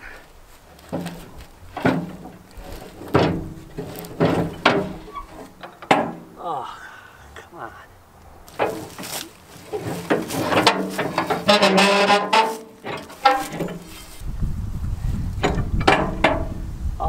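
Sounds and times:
pry bar knocking and scraping steel: 0.8s - 6.3s, 8.5s - 14.1s.

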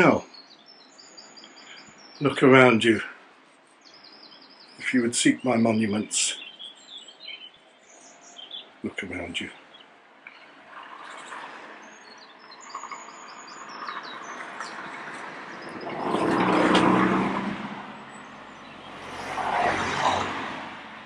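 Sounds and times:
small birds chirping: 0.0s - 17.0s, 17.9s - 19.4s
car driving past: 10.3s - 21.0s.

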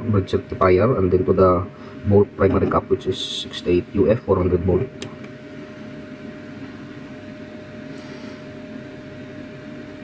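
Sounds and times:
low hum and hiss: 0.0s - 10.0s.

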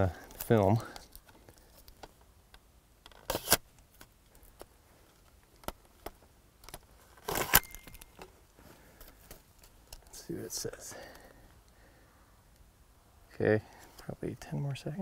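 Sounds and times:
small handling clicks: 0.2s - 8.4s.

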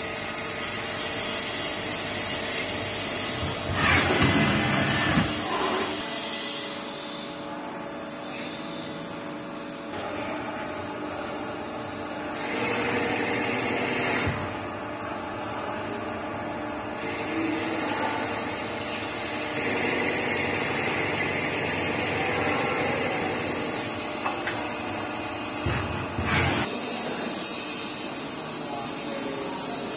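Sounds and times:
lathe cutting metal: 12.4s - 14.3s, 17.0s - 25.5s.

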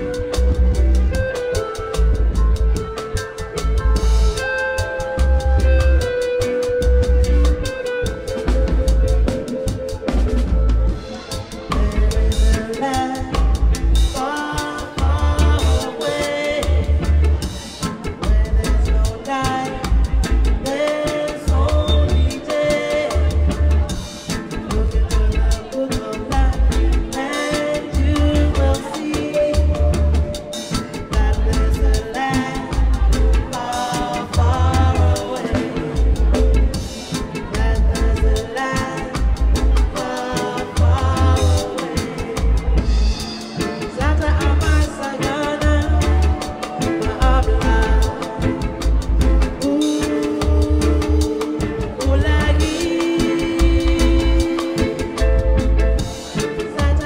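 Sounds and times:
deep pulsing bass line: 0.0s - 4.5s, 5.2s - 6.1s, 6.8s - 7.8s, 8.4s - 11.0s, 11.8s - 14.2s, 15.0s - 15.8s, 16.6s - 17.5s, 18.2s - 19.2s, 19.8s - 20.7s, 21.5s - 22.3s, 23.1s - 23.9s, 24.7s - 25.6s, 26.3s - 27.1s, 28.0s - 28.8s, 29.6s - 30.3s, 31.2s - 32.1s, 32.7s - 33.5s, 34.2s - 36.8s, 37.6s - 38.5s, 39.2s - 40.0s, 40.7s - 41.7s, 42.3s - 43.3s, 44.0s - 49.8s, 50.4s - 52.8s, 53.6s - 54.5s, 55.2s - 56.1s, 56.8s - 57.0s
reggae band playing: 0.0s - 57.0s
people singing: 11.0s - 57.0s.

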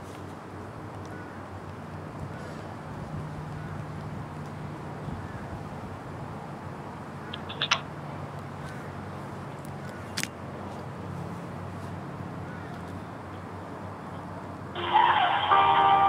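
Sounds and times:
sharp clicks: 7.3s - 7.9s.

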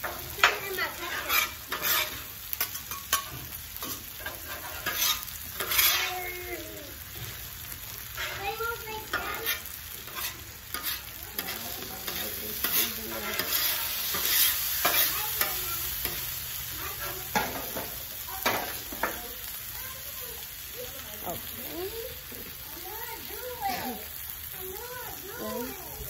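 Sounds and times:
spatula clinking and scraping: 0.0s - 6.5s, 8.0s - 19.2s
food sizzling on griddle: 0.0s - 26.0s.

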